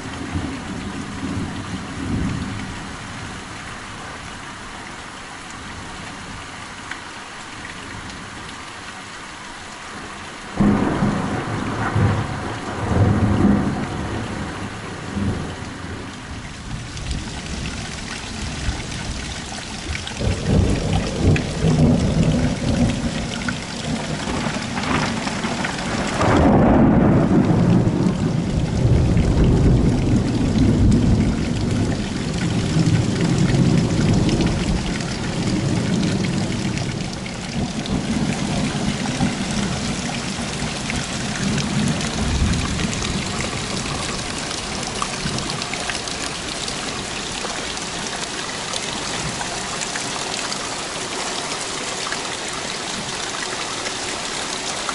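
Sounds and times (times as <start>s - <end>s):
heavy rain: 0.0s - 54.9s
loud thunderclap: 10.6s - 15.5s, 20.2s - 36.6s
rolling thunder: 10.6s - 17.8s, 20.2s - 46.3s.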